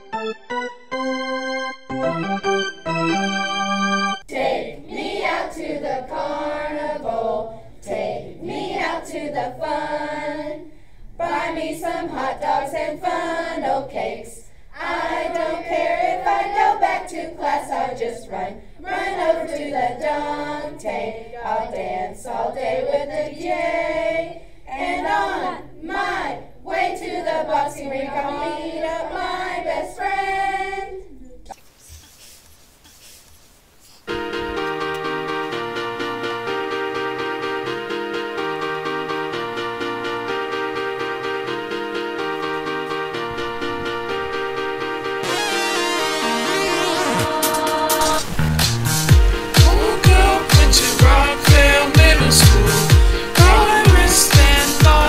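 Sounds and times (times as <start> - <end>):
young voices singing pop song: 4.3 - 31.6, 46.1 - 48.4, 49.1 - 55.0.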